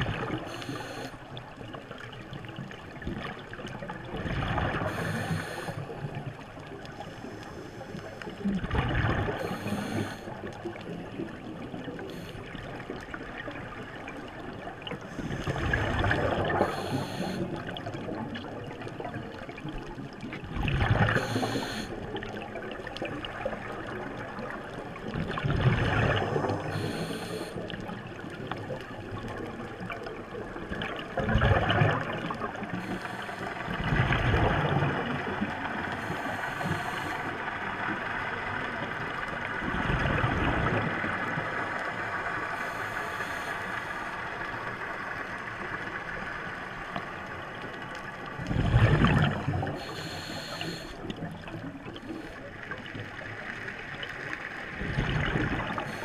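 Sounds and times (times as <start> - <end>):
steady regulator hiss: 0.3 - 1.4, 4.9 - 6.1, 9.4 - 10.4, 16.6 - 17.6, 21.2 - 22.0, 26.6 - 27.7, 32.7 - 33.7, 35.9 - 37.5, 42.5 - 44.8, 49.8 - 51.1, 55.8 - 56.0
bubbly rush of exhaled air: 48.5 - 49.8.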